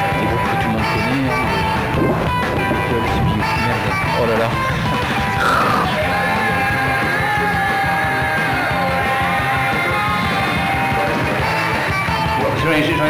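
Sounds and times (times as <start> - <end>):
shouted lead vocal: 5.4 - 8.8.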